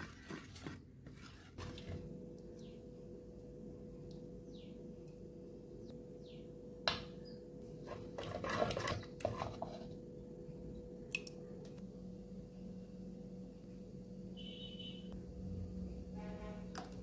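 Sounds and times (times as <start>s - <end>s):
wet scraping and squishing: 0.0s - 2.0s, 7.9s - 9.9s.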